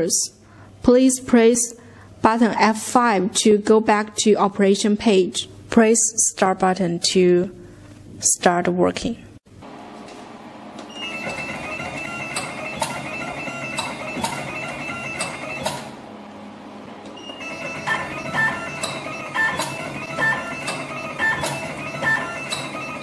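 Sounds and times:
machine motor whine: 9.6 - 23.0
machine sharp clicks: 11.1 - 16.0, 17.4 - 23.0.

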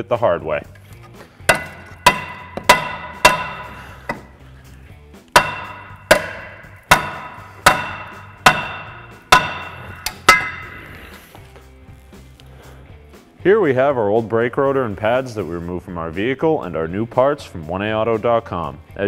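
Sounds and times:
hammer striking metal rotor: 1.5 - 4.3, 5.3 - 10.9.

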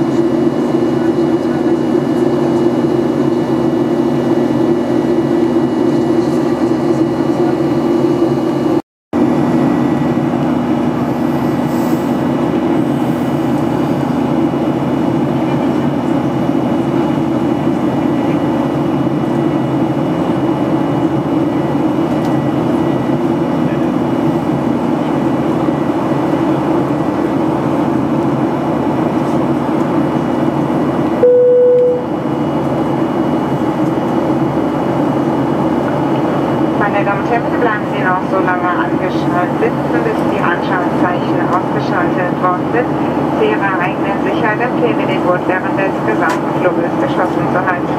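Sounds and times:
airplane cabin drone: 0.0 - 47.9
single-tone chime: 31.2 - 32.1.

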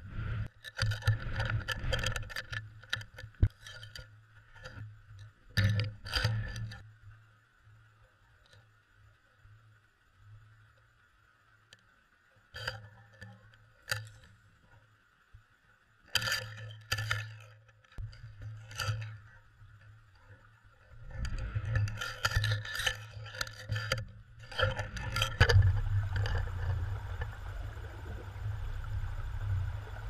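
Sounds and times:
low steady hum: 0.0 - 30.0
water rushing: 24.4 - 30.0.

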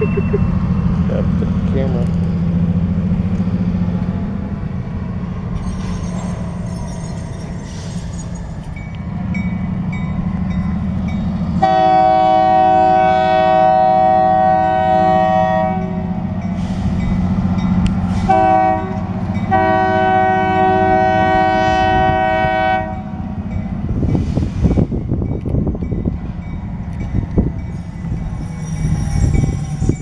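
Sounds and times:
diesel engine rumble: 0.0 - 30.0
locomotive air horn blasts: 11.6 - 16.0, 18.1 - 23.1.

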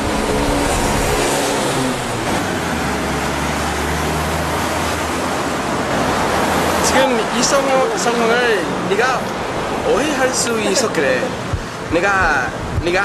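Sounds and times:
car engine humming: 0.0 - 13.0
rushing background noise: 0.0 - 13.0.

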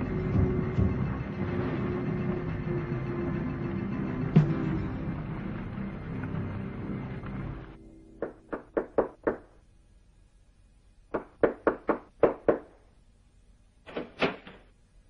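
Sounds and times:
fist knocking on door: 8.2 - 9.4.

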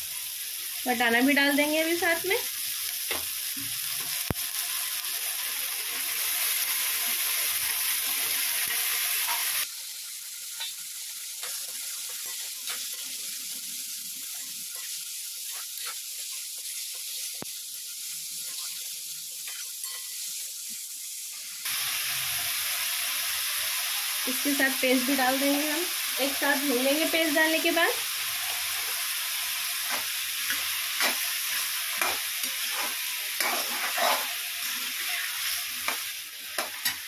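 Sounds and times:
vegetables sizzling in oil: 0.0 - 37.0
spoon scraping a pan: 29.8 - 37.0.

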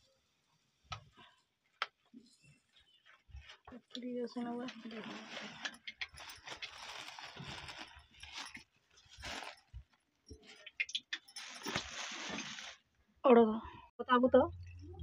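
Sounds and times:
plastic bag crinkling: 3.0 - 12.9.

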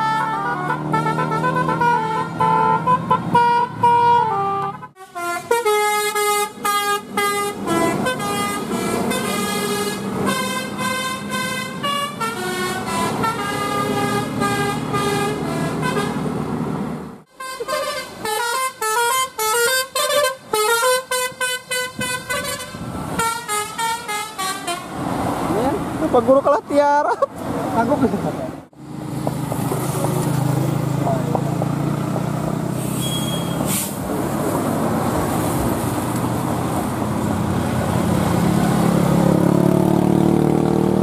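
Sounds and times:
bus horn playing melodic tunes: 0.0 - 16.3, 17.3 - 25.0.

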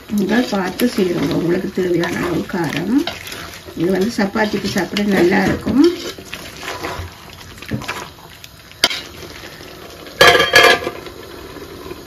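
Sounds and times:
curry stirred in steel pot: 0.0 - 10.2.

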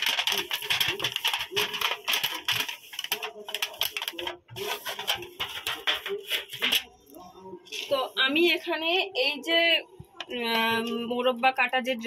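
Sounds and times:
foil pan crinkling: 0.0 - 6.9.

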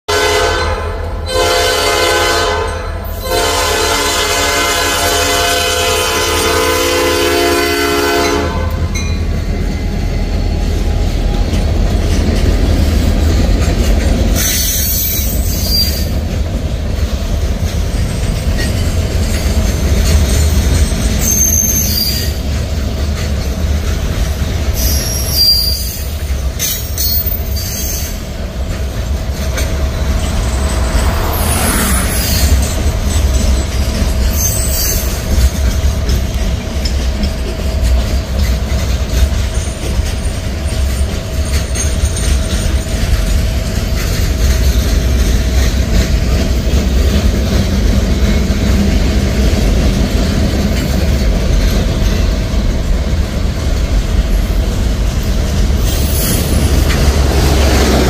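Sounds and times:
locomotive air horn blasts: 0.1 - 8.9
train cars rolling on rails: 0.1 - 58.0
high-pitched wheel squeals: 14.4 - 16.2, 18.6 - 22.5, 24.8 - 28.3, 29.6 - 35.5
diesel engine rumble: 28.2 - 34.3.

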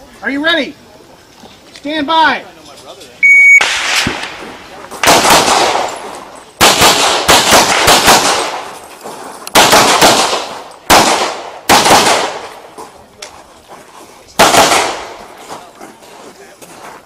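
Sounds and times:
handgun shots echoing: 5.0 - 8.7, 9.5 - 12.6.

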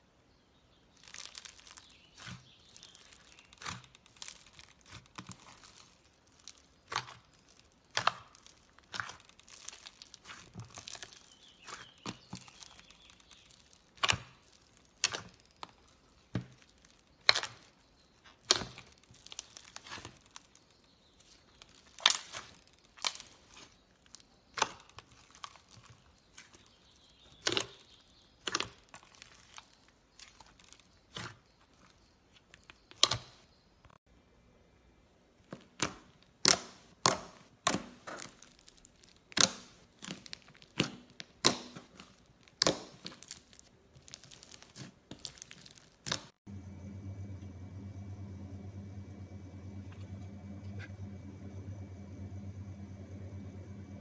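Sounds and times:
foam beads crunching: 0.9 - 17.8, 18.4 - 24.2, 38.1 - 40.8, 41.9 - 46.4
slime popping and crackling: 0.9 - 17.8, 18.4 - 26.7, 35.8 - 46.4.

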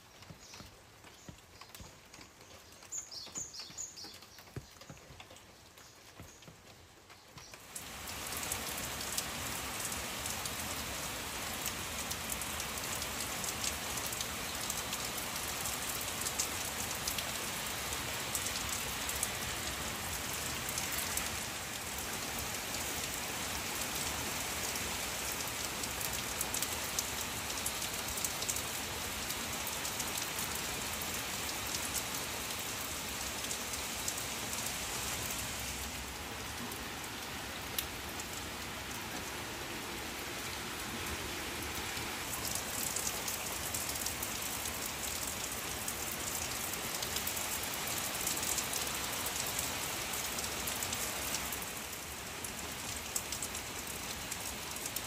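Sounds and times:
rain on leafy plants: 0.0 - 55.0.

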